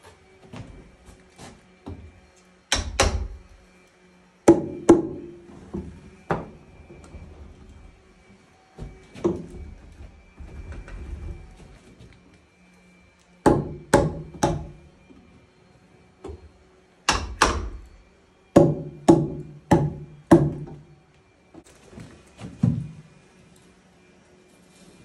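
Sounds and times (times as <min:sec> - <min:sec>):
hammer blows on log wall: 0:02.7 - 0:03.5, 0:04.5 - 0:06.6, 0:13.4 - 0:14.8, 0:17.1 - 0:17.8, 0:18.6 - 0:20.9.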